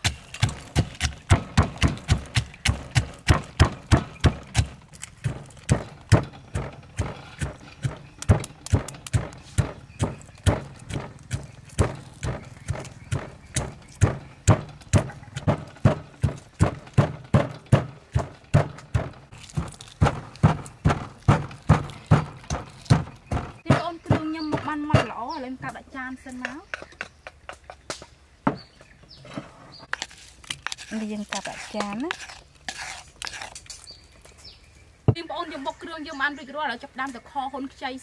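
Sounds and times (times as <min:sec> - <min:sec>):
stone pestle pounding in mortar: 0:00.0 - 0:25.2.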